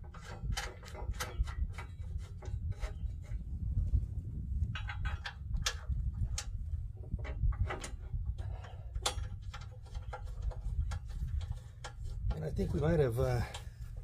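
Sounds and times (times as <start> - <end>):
metal clicks and taps: 4.7 - 6.6, 7.2 - 12.4.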